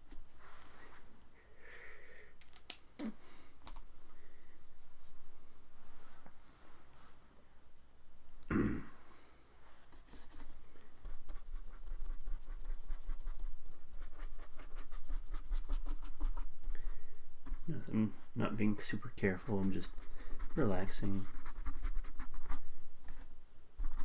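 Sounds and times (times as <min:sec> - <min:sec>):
ink brush scratching on paper: 0:09.9 - 0:17.9, 0:19.2 - 0:24.0.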